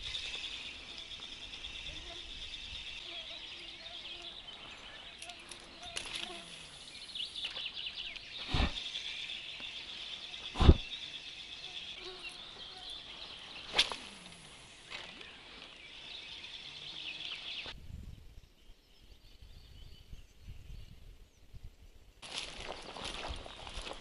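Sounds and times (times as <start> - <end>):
birds and insects chirping: 0.0 - 24.0
faint low wind rumble: 17.6 - 24.0.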